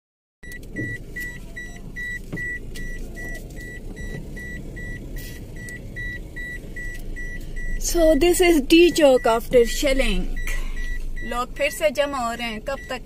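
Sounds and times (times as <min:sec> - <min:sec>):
car engine rumble: 0:00.4 - 0:13.0
car warning chime beeping: 0:00.4 - 0:13.0
road noise: 0:00.4 - 0:13.0.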